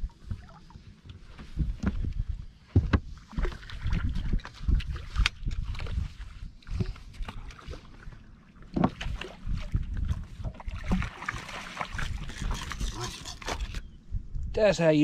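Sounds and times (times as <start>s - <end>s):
water splashing: 7.2s - 13.8s.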